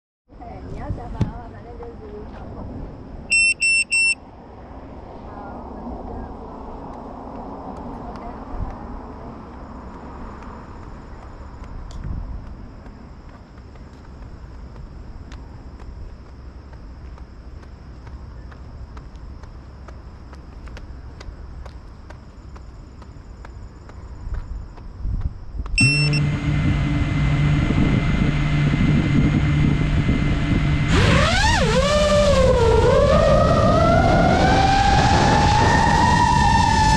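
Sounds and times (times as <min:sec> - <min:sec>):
short high electronic beeps: 0:03.3 - 0:04.2, 0:25.8 - 0:26.3
drone motors whining: 0:25.8 - 0:36.9.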